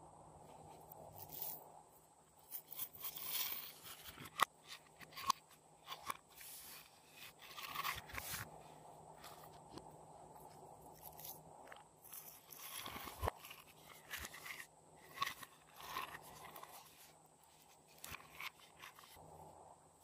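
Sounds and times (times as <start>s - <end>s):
scraping and crunching slime: 6.0s - 8.5s, 10.9s - 17.2s.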